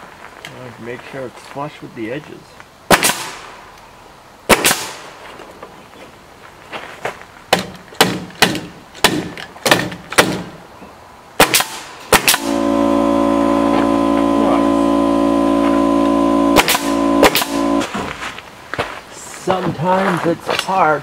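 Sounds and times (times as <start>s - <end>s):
nail gun shots: 2.9s - 3.5s, 4.5s - 5.1s, 7.6s - 10.5s, 11.4s - 12.6s, 16.6s - 17.7s
loud motor hum: 12.3s - 18.1s.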